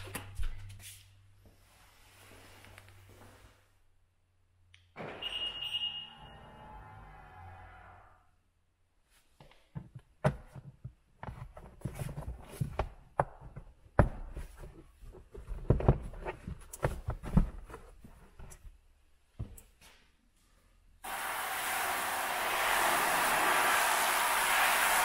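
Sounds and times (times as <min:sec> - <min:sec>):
rubber floor mat scuffing and rustling: 0:10.4 - 0:18.7.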